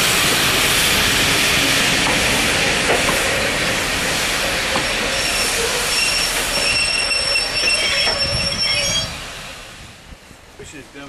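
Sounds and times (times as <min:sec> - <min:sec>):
steam locomotive running: 0:00.0 - 0:09.9
wheels squealing on track: 0:05.1 - 0:09.3.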